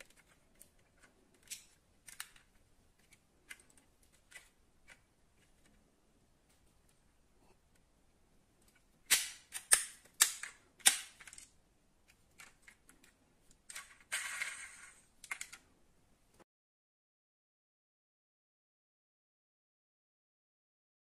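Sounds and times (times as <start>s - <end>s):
rattle: 13.7s - 15.6s.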